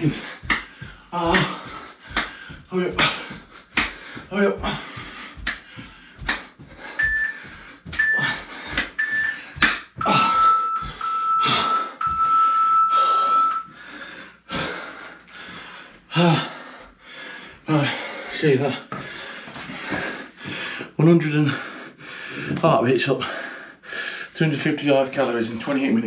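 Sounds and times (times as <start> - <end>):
sharp slaps: 0.0 - 4.3, 5.0 - 10.1
heavy panting: 0.0 - 24.3
interval timer beeps: 6.9 - 13.8.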